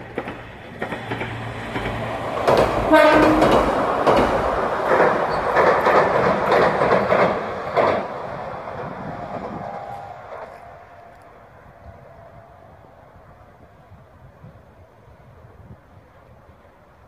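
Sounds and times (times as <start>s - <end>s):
train wheels clattering over rail joints: 0.0s - 10.8s.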